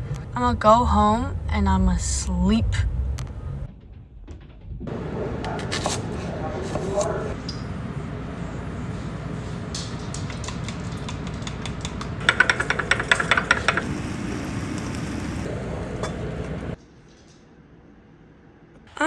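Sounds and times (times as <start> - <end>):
steady low hum: 0.0 - 16.8
chopsticks beating eggs in bowl: 10.2 - 13.8.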